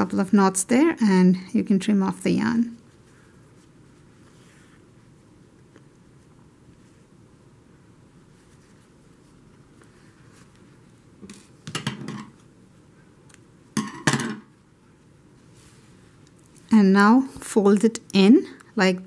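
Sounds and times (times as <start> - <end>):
hands rustling yarn: 2.8 - 11.6, 14.5 - 17.5.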